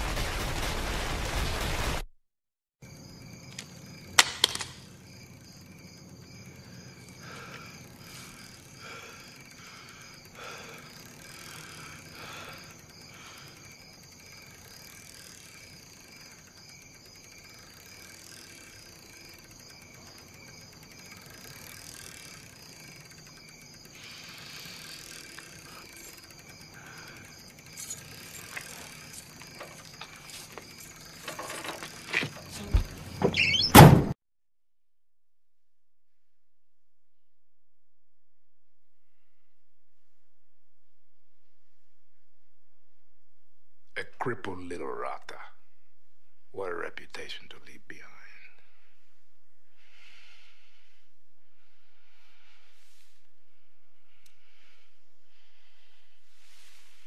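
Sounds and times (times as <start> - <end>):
crickets chirping: 2.8 - 33.8, 41.4 - 57.0
knocks and thuds: 32.7 - 34.2.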